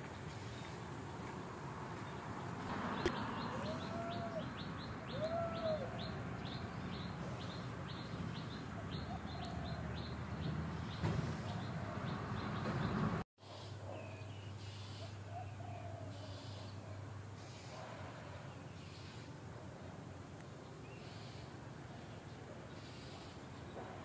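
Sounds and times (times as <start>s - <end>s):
bird chirping: 2.0s - 13.2s
rising-and-falling bird call: 3.0s - 6.6s.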